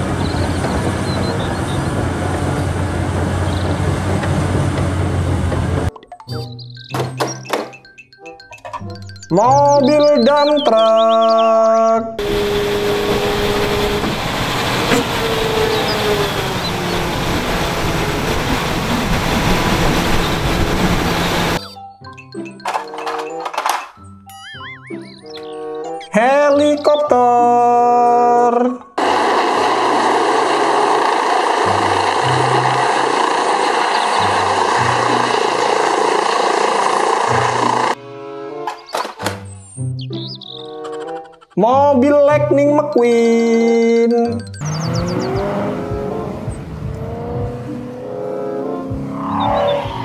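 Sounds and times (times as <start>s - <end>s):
truck engine running: 0.0s - 5.9s, 12.2s - 21.8s, 29.0s - 38.0s, 44.4s - 50.0s
helicopter hovering: 0.0s - 6.4s, 12.2s - 23.4s, 29.0s - 38.0s, 44.4s - 50.0s
hydraulic whine: 12.2s - 21.7s, 29.0s - 38.0s
background music with bass line: 41.6s - 50.0s.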